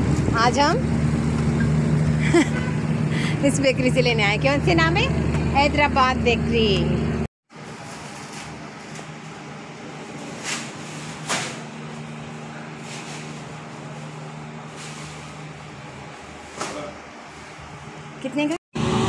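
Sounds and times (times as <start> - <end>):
low engine hum: 0.0 - 7.3
street traffic: 0.0 - 19.0.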